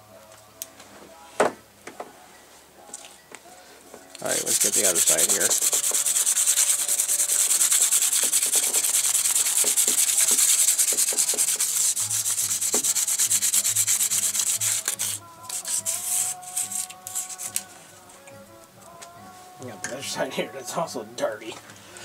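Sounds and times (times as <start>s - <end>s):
hand rubbing strokes: 4.2s - 18.2s.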